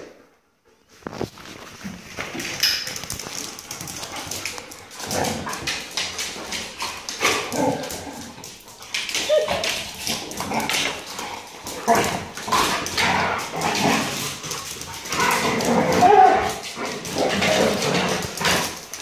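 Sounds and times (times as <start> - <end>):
dogs scuffling: 0.8 - 19.0
dogs yipping: 9.0 - 10.0
dogs whining: 9.0 - 10.4, 15.2 - 16.7.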